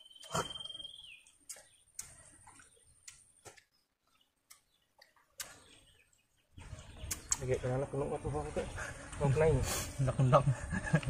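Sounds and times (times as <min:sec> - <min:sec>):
faint eating clicks: 0:01.3 - 0:03.7, 0:04.4 - 0:05.7.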